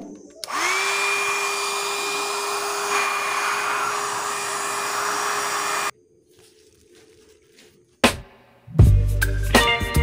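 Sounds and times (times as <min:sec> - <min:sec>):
hot-air blower whining: 0:00.4 - 0:05.9.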